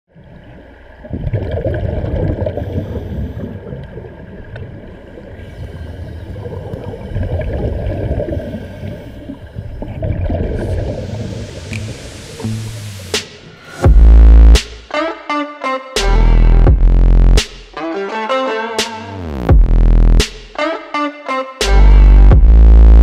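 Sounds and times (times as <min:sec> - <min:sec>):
churning gurgling water: 0:00.1 - 0:13.2.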